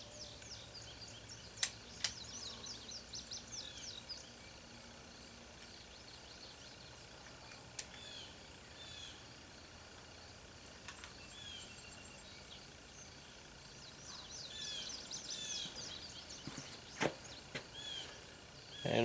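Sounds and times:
birds chirping: 0.0s - 19.0s
pistol handling clicks: 1.6s - 2.3s, 7.5s - 8.0s.

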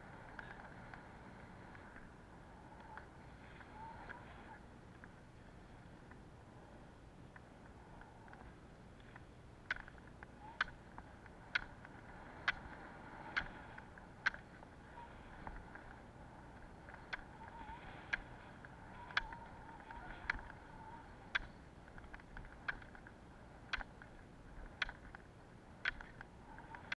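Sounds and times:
ski wheels rolling on road: 0.0s - 27.0s
ski pole tips clicking on asphalt: 7.3s - 14.6s, 15.2s - 27.0s.

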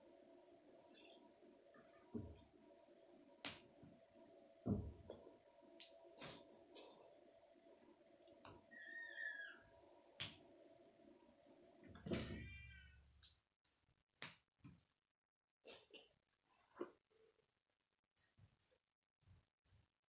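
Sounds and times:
cat meow: 8.7s - 9.6s, 12.3s - 13.0s.

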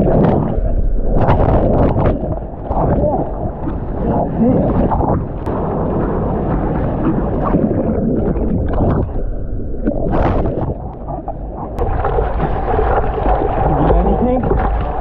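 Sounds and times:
surf and churning water: 0.0s - 15.0s
water splash: 0.0s - 15.0s
wind buffeting microphone: 0.0s - 15.0s.

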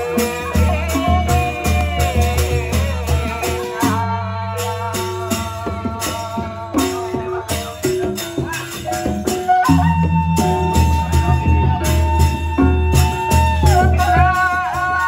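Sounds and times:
bamboo flute melody: 6.8s - 15.0s.

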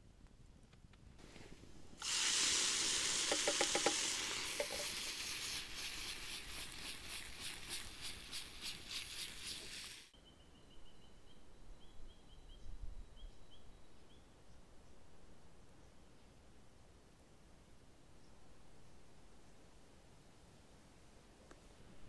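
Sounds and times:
food sizzling in a pan: 2.0s - 10.1s.

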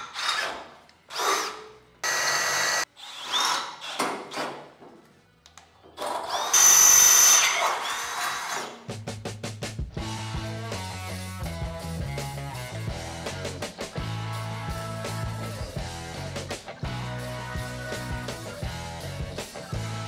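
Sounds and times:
power drill whining through steel: 0.0s - 4.4s, 6.0s - 8.8s.

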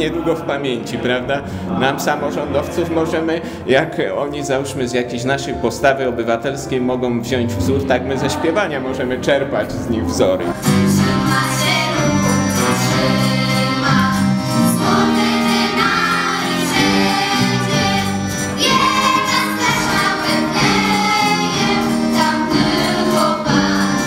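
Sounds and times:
instrumental accompaniment low notes: 0.0s - 24.0s
children's choir singing: 7.6s - 9.8s, 10.4s - 24.0s.

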